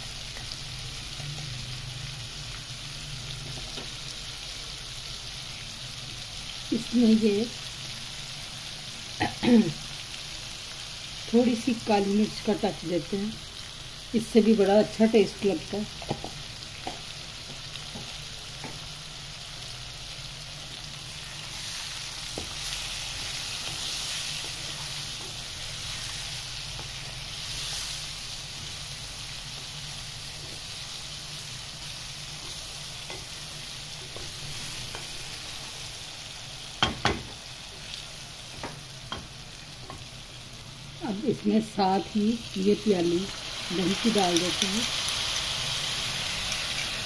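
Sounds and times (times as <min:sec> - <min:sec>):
chicken sizzling in a metal pan: 0:00.0 - 0:47.0
spatula knocking against pan: 0:36.8 - 0:37.3.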